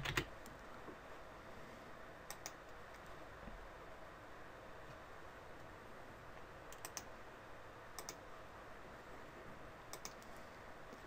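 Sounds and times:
faint steady hiss: 0.0 - 11.0
computer mouse clicks: 2.3 - 3.0, 6.7 - 7.1, 8.0 - 8.2, 9.9 - 10.4.

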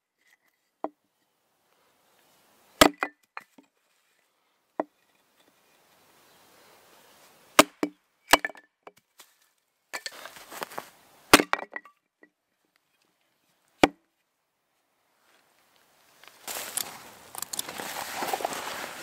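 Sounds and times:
axe chopping wood: 2.8 - 3.4, 7.6 - 9.0, 11.3 - 11.9, 13.8 - 14.0
soft scraping: 16.2 - 19.0.

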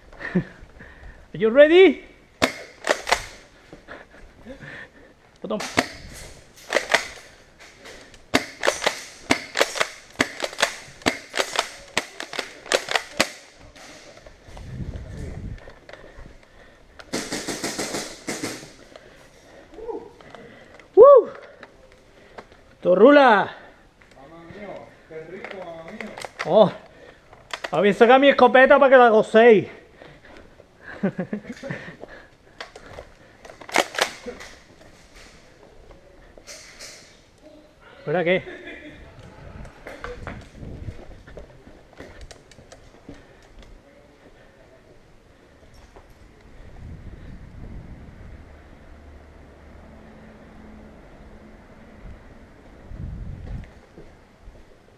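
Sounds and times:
airsoft gun shots popping: 2.4 - 3.4
airsoft guns firing: 2.4 - 3.5, 5.6 - 7.4, 8.1 - 14.2, 17.0 - 18.9, 33.6 - 34.6
faint shout: 19.7 - 20.2, 21.0 - 21.6.

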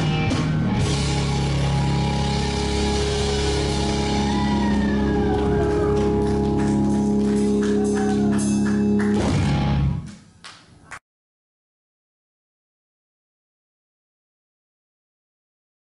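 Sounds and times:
blues-rock band playing: 0.0 - 10.1.

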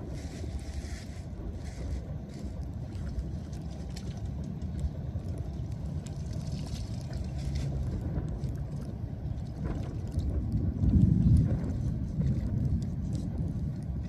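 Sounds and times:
floodwater splashing: 0.0 - 14.0
steady low rumble: 0.0 - 14.0
wet debris rustling: 0.0 - 14.0.

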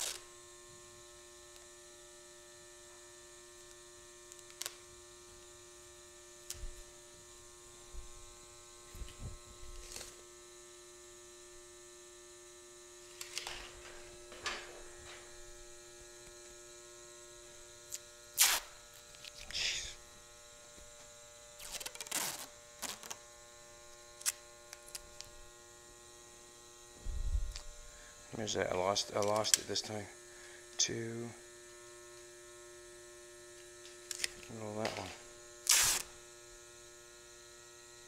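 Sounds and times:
masking tape pulled from roll: 0.0 - 0.2, 9.8 - 10.2, 17.9 - 19.6, 21.6 - 23.2, 35.6 - 36.2
faint electrical hum: 0.0 - 38.0.

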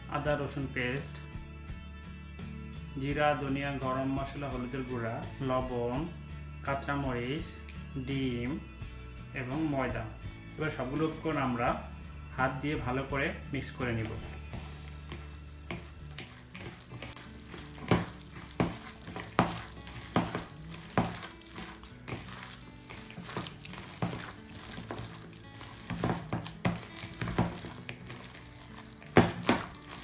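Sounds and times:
faint background music: 0.0 - 30.0
hands squelching wet mince: 14.0 - 30.0.

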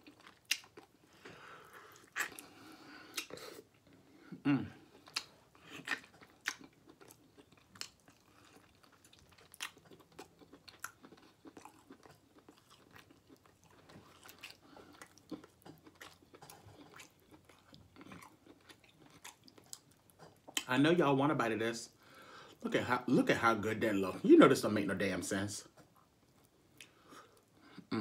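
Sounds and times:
person chewing meat: 0.0 - 20.7, 25.8 - 27.9
mouth smacks and clicks: 5.0 - 6.7.

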